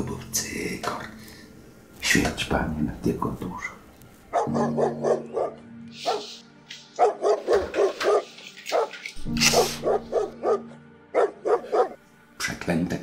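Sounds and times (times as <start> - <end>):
dog barking quickly: 4.4 - 6.4, 7.0 - 10.6, 11.2 - 12.0.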